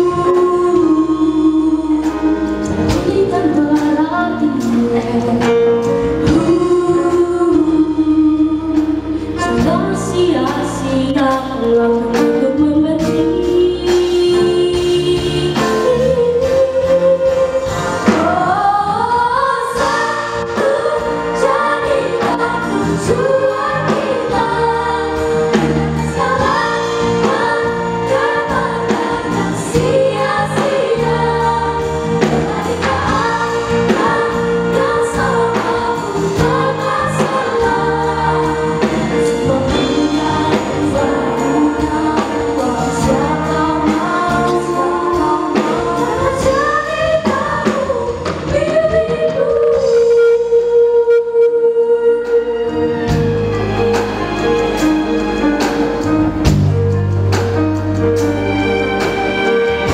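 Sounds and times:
amplified instrumental accompaniment: 0:00.0 - 0:59.9
girls singing solo into microphones: 0:13.0 - 0:52.5
children's choir singing: 0:17.4 - 0:50.0.

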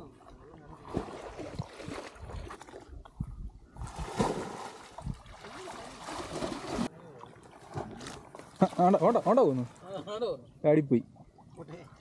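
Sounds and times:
muddy water splashing: 0:00.2 - 0:03.1, 0:03.7 - 0:10.0.

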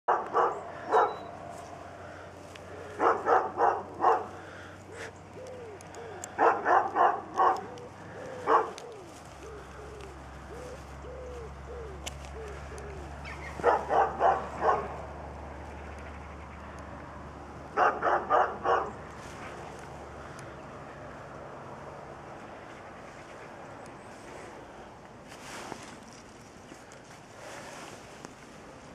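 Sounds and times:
dog barking: 0:00.1 - 0:01.3, 0:02.9 - 0:04.4, 0:06.4 - 0:07.7, 0:08.4 - 0:08.8, 0:13.5 - 0:15.0, 0:17.8 - 0:19.0
rising and falling calls: 0:00.1 - 0:16.7.

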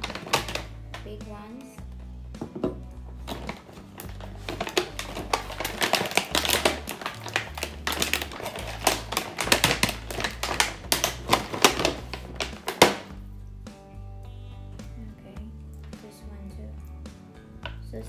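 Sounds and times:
plastic packaging crackling: 0:00.0 - 0:01.2, 0:02.6 - 0:13.2.

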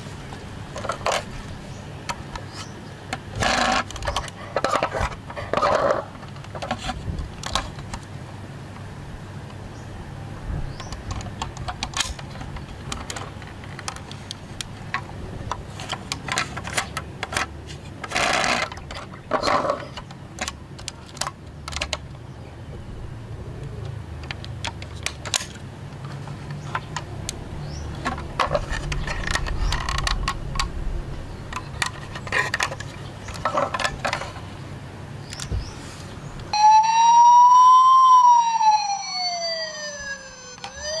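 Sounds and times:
toy truck doors clicking: 0:03.2 - 0:06.8, 0:15.8 - 0:22.0, 0:36.6 - 0:41.0
toy electronic siren wailing: 0:36.5 - 0:41.0.

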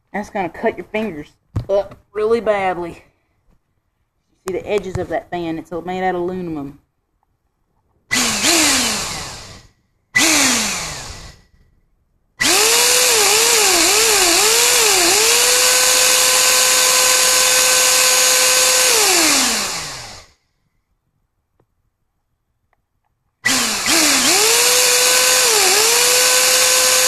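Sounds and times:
vacuum cleaner motor whining: 0:08.1 - 0:11.4, 0:12.4 - 0:20.3, 0:23.4 - 0:27.0.

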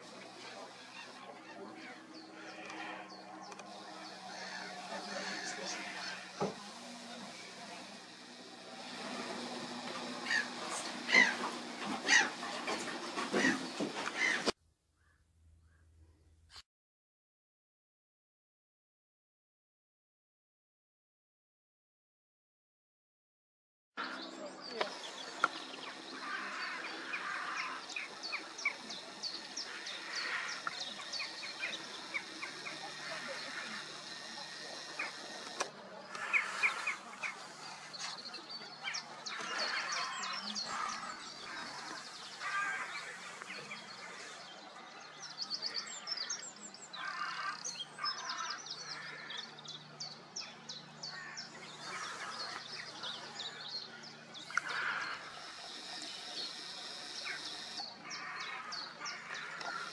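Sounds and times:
birds singing and chirping: 0:00.0 - 0:15.8, 0:24.0 - 0:59.9.

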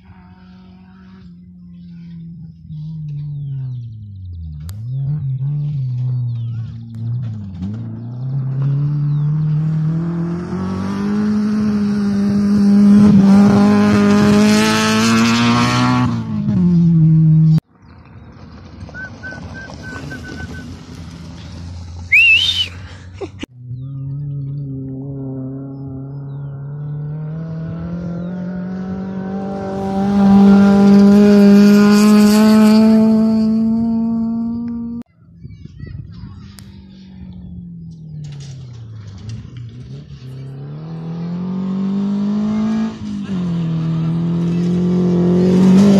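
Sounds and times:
rally car engine at high revs: 0:00.0 - 0:17.6, 0:23.7 - 0:35.0, 0:37.4 - 0:45.9
tyres on loose gravel: 0:17.7 - 0:23.1.

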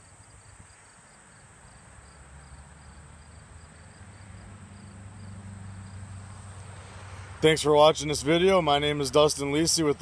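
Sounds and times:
crickets chirping: 0:00.0 - 0:07.6.

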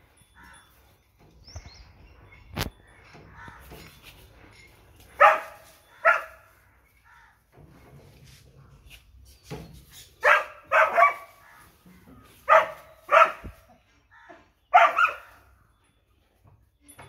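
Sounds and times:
puppy barking: 0:05.2 - 0:06.4, 0:10.2 - 0:11.4, 0:12.5 - 0:13.6, 0:14.7 - 0:15.3.

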